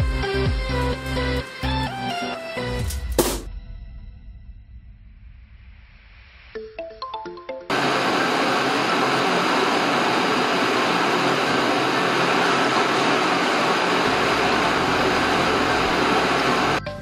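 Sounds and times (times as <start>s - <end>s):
blowtorch flames hissing: 7.7s - 16.8s.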